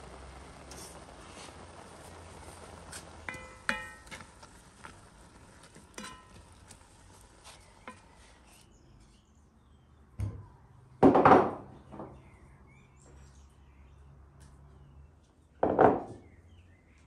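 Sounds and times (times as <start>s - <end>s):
wooden spatula stirring in pot: 0.6s - 8.7s
knock: 11.0s - 12.2s, 15.6s - 16.2s.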